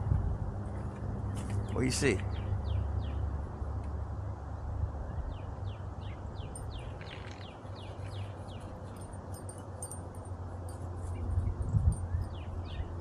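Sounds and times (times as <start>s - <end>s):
bird chirping: 5.2s - 10.0s.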